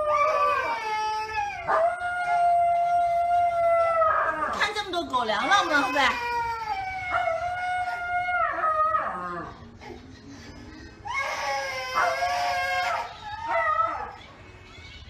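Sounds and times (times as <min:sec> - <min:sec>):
toddler crying: 0:00.0 - 0:03.8, 0:05.4 - 0:08.3, 0:11.0 - 0:15.0
dog howling: 0:00.0 - 0:04.6, 0:05.5 - 0:09.7, 0:11.2 - 0:14.3.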